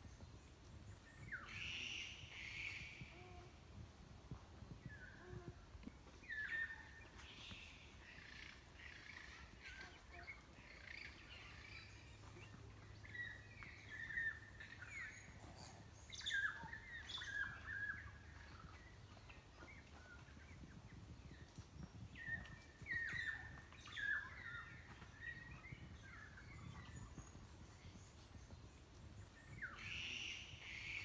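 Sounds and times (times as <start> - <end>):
birds chirping and whistling: 21.3 - 28.1, 29.4 - 31.0.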